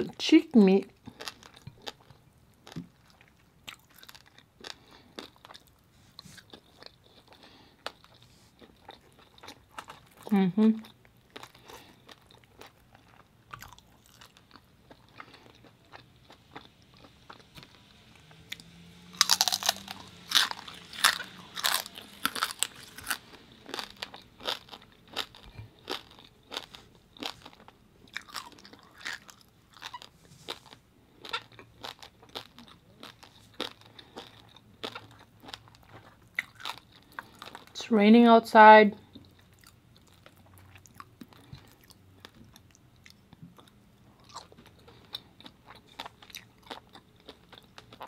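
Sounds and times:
chewing crunchy food: 0.8s - 37.8s, 39.0s - 48.0s.

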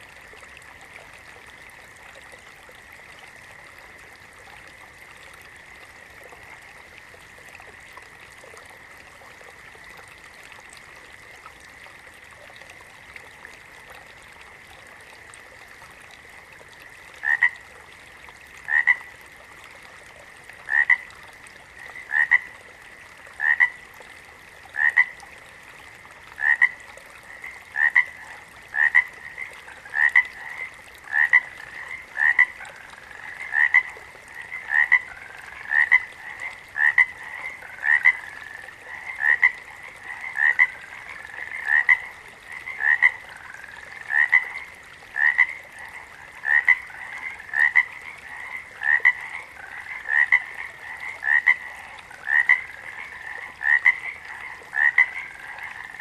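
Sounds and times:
frogs calling: 17.2s - 17.6s, 18.7s - 19.2s, 20.7s - 21.1s, 21.7s - 22.6s, 23.4s - 23.8s, 24.7s - 25.2s, 26.4s - 56.0s.

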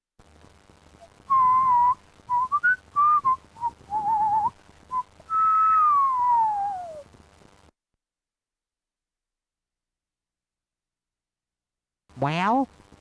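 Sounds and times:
person whistling a tune: 1.3s - 7.0s.

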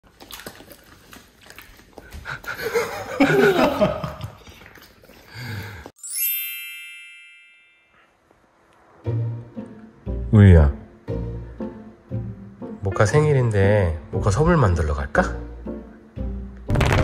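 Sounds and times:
bright chime ringing: 6.0s - 8.2s.

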